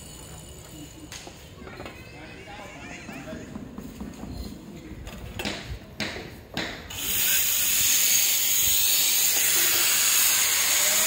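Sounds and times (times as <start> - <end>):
angle grinder grinding: 6.9 - 11.0.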